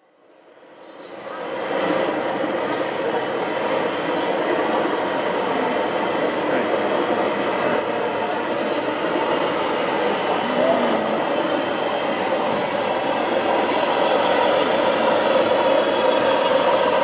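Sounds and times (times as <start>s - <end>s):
model train running: 0.2s - 17.0s.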